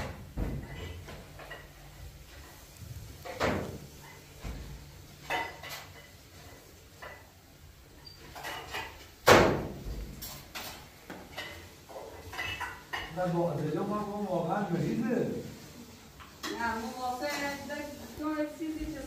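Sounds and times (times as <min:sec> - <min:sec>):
household knocks and bangs: 0:00.0 - 0:01.5, 0:08.6 - 0:10.3.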